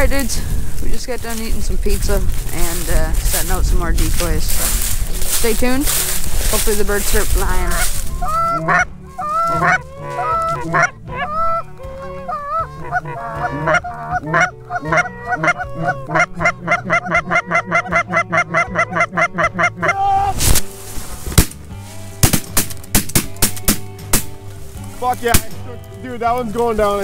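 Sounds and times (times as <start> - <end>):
goose honking and clucking: 6.5 - 20.4.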